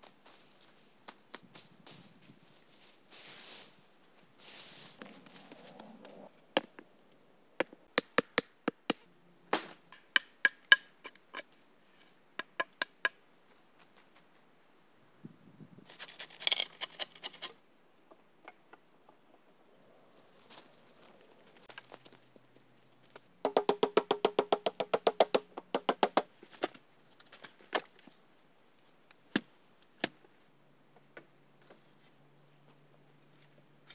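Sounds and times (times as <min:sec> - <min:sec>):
brush rustling: 0:00.0 - 0:06.3, 0:15.8 - 0:17.6
hatchet chopping wood: 0:07.6 - 0:11.2, 0:23.4 - 0:26.3.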